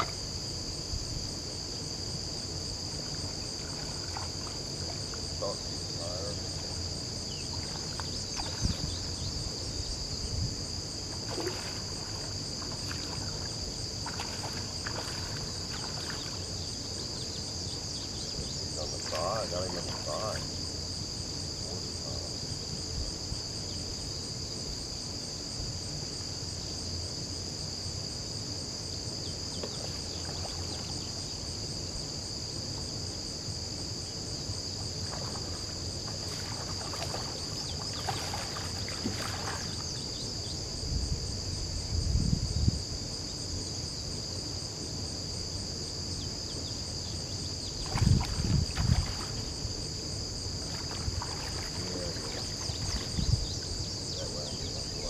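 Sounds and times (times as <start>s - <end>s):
insects buzzing: 0.0s - 55.0s
fish thrashing and splashing: 11.2s - 16.4s, 35.1s - 39.7s, 47.9s - 49.5s, 50.6s - 53.2s.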